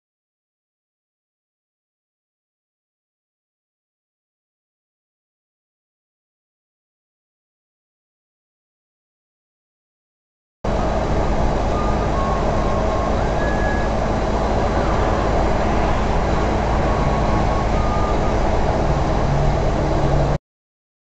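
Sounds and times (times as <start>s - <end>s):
road noise: 10.7s - 20.4s
truck engine drone: 10.7s - 20.4s.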